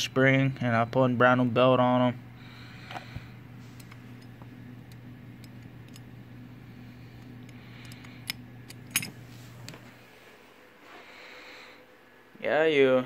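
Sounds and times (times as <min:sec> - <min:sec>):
steady low hum: 0:00.0 - 0:13.0
metal parts clicking and knocking: 0:08.2 - 0:09.1.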